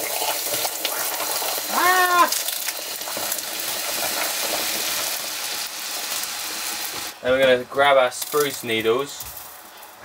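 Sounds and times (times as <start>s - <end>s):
caramel sizzling in a pan: 0.0s - 10.0s
person exclaiming: 1.6s - 2.5s.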